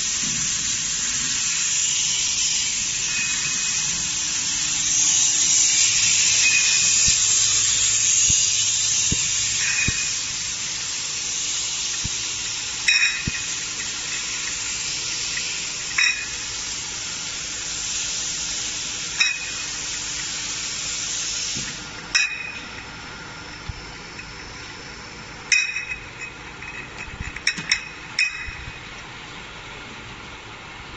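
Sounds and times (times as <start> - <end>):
machinery hiss: 0.0 - 26.1
glass bottles clinking: 12.8 - 14.2.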